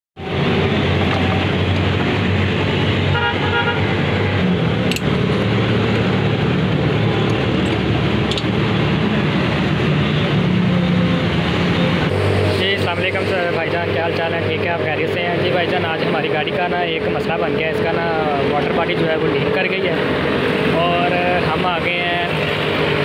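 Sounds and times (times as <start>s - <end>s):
road traffic engine hum: 0.2s - 23.0s
vehicle horn beeps: 3.1s - 3.8s.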